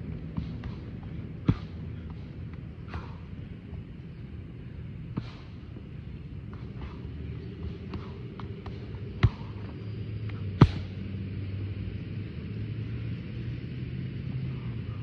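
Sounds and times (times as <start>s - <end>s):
steady low hum: 0.0s - 15.0s
boxing gloves smacking pads: 0.3s - 2.2s, 10.6s - 10.9s.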